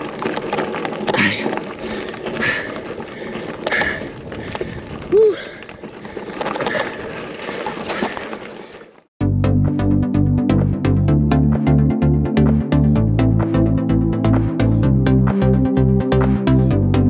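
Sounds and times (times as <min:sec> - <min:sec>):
rider breathing hard: 0:00.0 - 0:09.1
wind and riding noise: 0:00.0 - 0:09.1.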